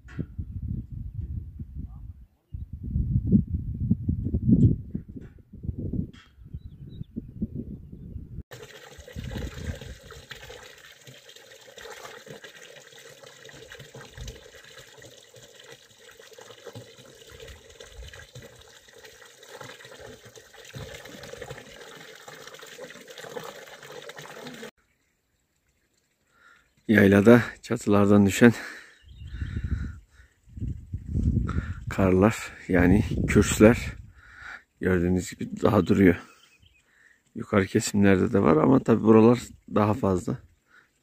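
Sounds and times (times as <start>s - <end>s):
water splashing into stone trough: 8.5s - 24.7s.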